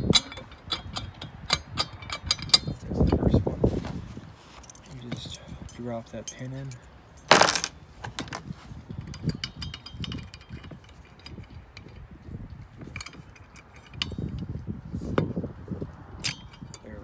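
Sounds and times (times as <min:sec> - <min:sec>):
small metal clicks and clinks: 0:04.6 - 0:07.7, 0:09.0 - 0:12.0.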